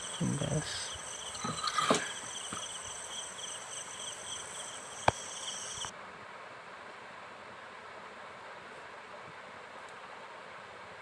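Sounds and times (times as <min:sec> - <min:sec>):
crickets chirring: 0:00.0 - 0:05.9.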